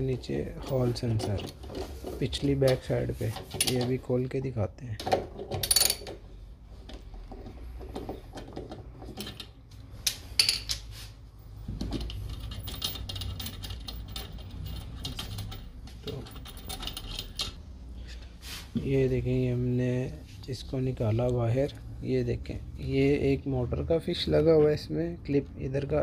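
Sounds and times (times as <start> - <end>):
metal clinks of tool and bolts: 11.8 - 17.6.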